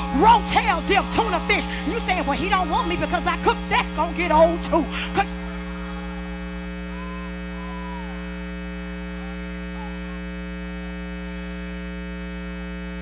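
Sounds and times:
electrical mains hum: 0.0 - 13.0
faint voice-like tones: 5.2 - 11.9.

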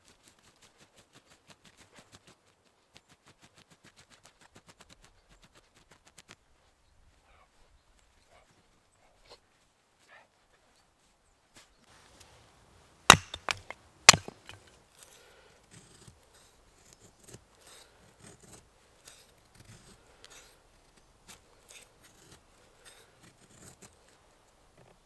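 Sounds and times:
knife shaving wooden stick: 0.0 - 2.6, 13.1 - 25.0
hatchet splitting wood: 13.1 - 14.8.

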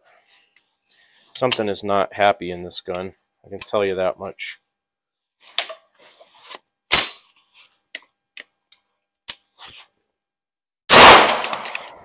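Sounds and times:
gunshots: 10.9 - 11.8.

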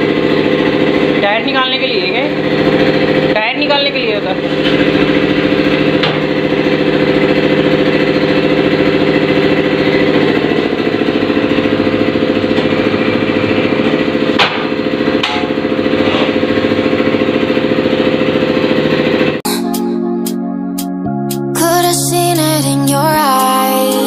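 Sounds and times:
motor humming with fast pulse: 0.0 - 19.4
sharp knocks: 14.3 - 15.6.

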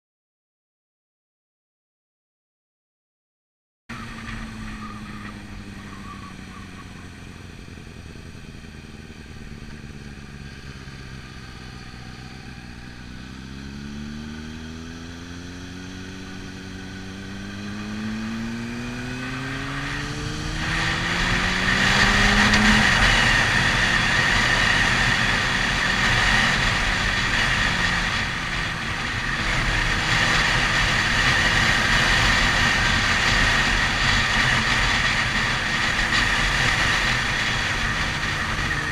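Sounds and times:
motorcycle engine accelerating: 3.9 - 38.9.

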